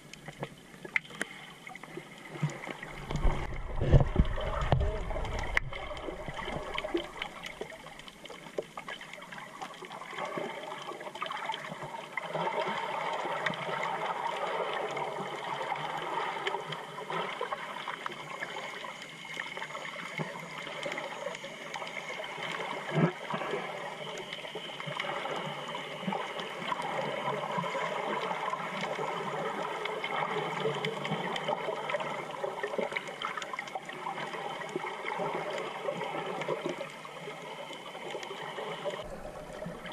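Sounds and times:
underwater crackling: 0:00.0 - 0:39.9
underwater moving water: 0:00.0 - 0:39.9.

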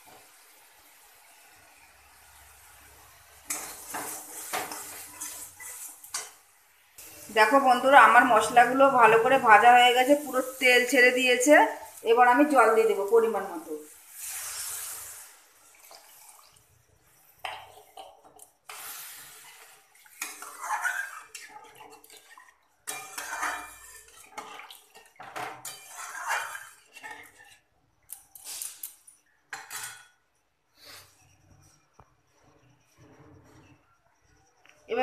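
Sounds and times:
metal spatula scraping pan: 0:03.2 - 0:06.4, 0:17.1 - 0:27.7, 0:29.5 - 0:30.2
water pouring into pan: 0:09.8 - 0:27.6.

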